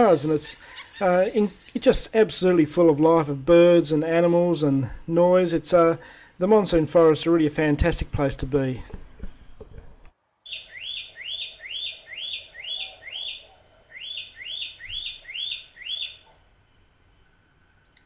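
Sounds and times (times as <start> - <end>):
bird calling upward-sweeping notes: 10.4 - 18.0.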